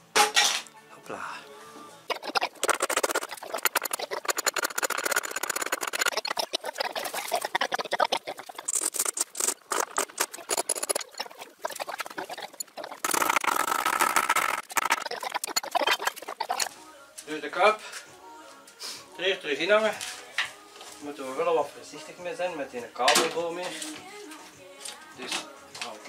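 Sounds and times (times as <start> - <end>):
scratching and clicking in plastic tub: 2.1 - 16.7.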